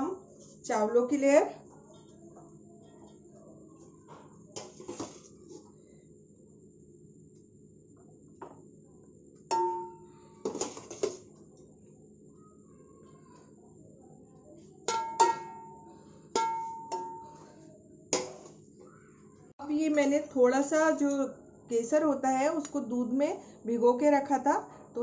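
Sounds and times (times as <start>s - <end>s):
metal utensil knocking on pot: 9.5s - 10.0s, 14.9s - 15.8s, 16.4s - 17.3s.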